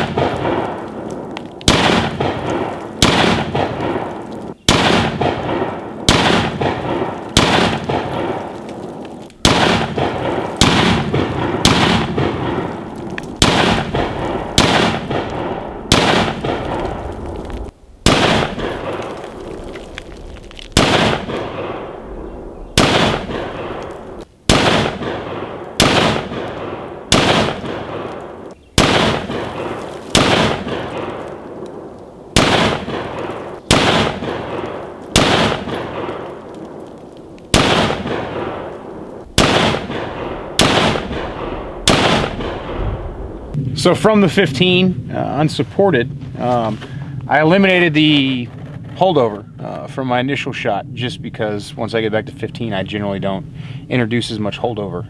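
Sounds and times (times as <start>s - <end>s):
rifle shots echoing: 0.0s - 43.7s.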